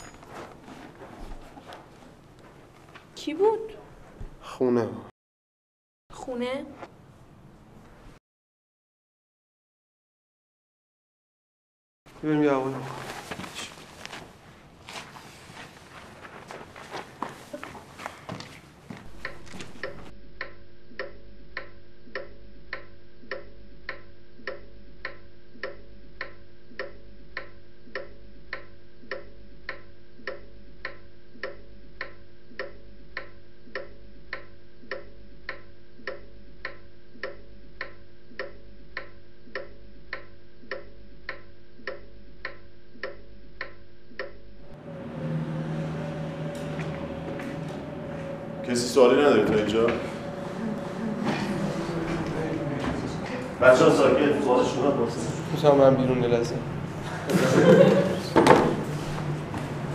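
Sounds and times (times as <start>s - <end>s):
room noise: 0.0s - 5.1s, 12.1s - 59.9s
steady low hum: 12.1s - 59.9s
pendulum clock ticking: 19.1s - 44.4s.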